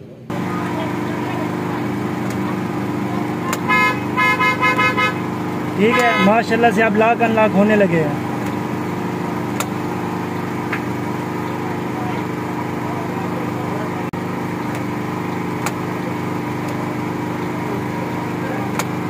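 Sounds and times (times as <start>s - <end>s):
car engine idling: 0.1s - 19.0s.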